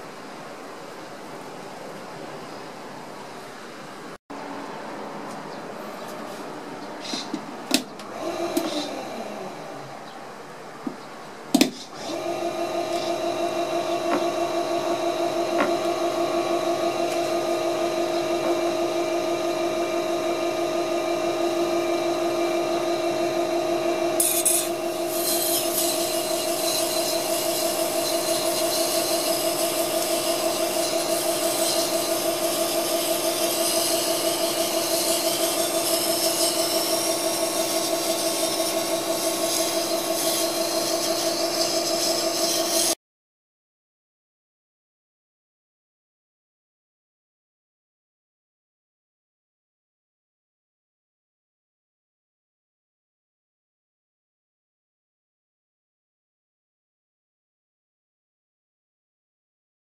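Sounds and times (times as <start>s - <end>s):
sharpener motor humming: 8.0s - 9.6s, 11.8s - 43.0s
knife grinding on whetstone: 24.2s - 43.0s.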